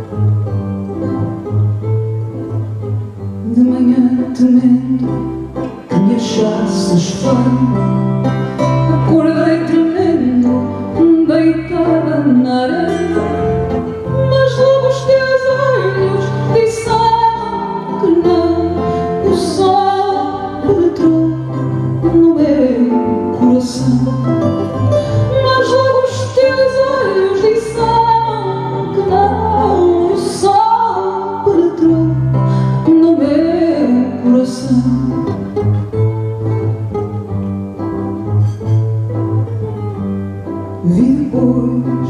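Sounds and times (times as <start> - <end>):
plucked guitars: 0.0 - 42.0
woman singing: 3.4 - 35.6, 40.7 - 42.0.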